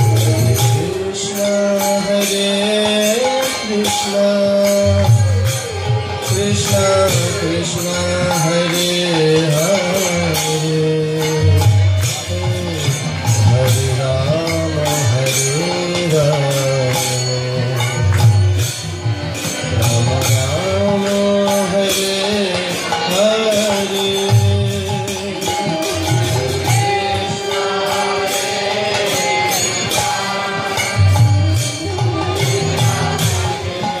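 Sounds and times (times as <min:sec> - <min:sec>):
devotional singing: 0:00.0 - 0:18.3, 0:19.2 - 0:34.0
jingling hand percussion: 0:00.0 - 0:34.0.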